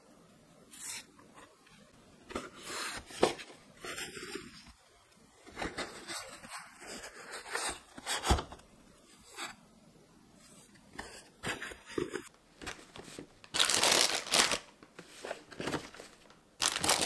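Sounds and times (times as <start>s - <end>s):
paper and mesh bags rustling: 15.4s - 17.0s.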